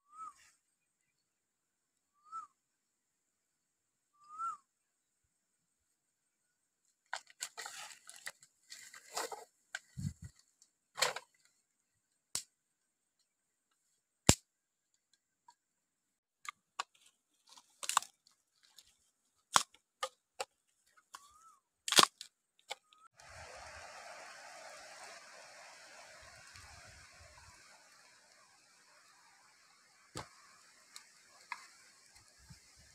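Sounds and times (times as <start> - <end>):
bamboo sticks clicking on ground: 16.4 - 23.0
steady hiss: 23.2 - 32.9.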